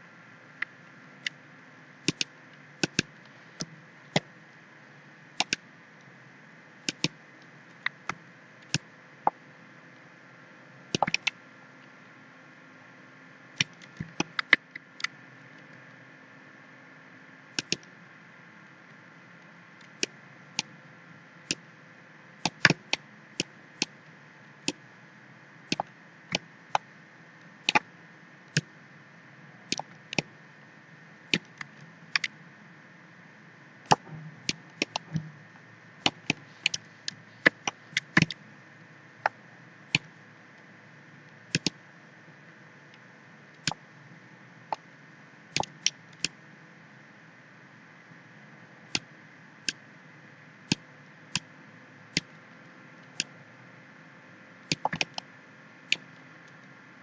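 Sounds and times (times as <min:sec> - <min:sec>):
faint steady hiss: 0:00.0 - 0:57.0
computer mouse clicking: 0:02.0 - 0:04.3, 0:05.4 - 0:05.6, 0:06.9 - 0:07.2, 0:10.9 - 0:11.4, 0:17.6 - 0:17.9, 0:22.4 - 0:23.9, 0:25.7 - 0:26.8, 0:29.7 - 0:30.3, 0:31.3 - 0:32.3, 0:33.9 - 0:35.4, 0:36.0 - 0:38.4, 0:41.5 - 0:41.8, 0:45.6 - 0:46.4, 0:54.7 - 0:55.2.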